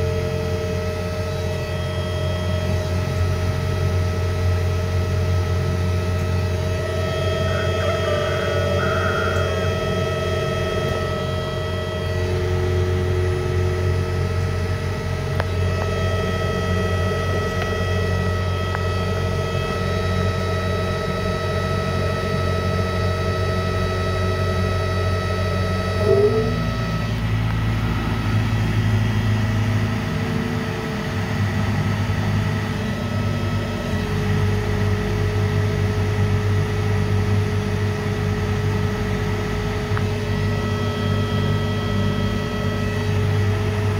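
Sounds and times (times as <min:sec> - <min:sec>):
electric motor humming and whining: 0:00.0 - 0:43.9
brief chirp: 0:26.0 - 0:26.7.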